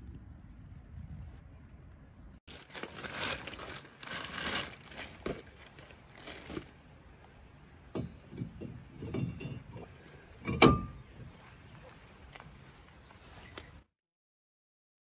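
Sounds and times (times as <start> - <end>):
plastic bag crinkling: 2.5 - 6.8
ringing metal clink: 8.0 - 11.0.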